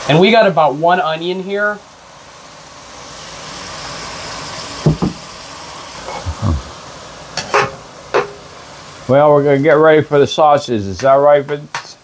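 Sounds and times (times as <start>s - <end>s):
onion sizzling in a frying pan: 1.0s - 12.0s
utensil knocking against pan: 4.9s - 5.2s.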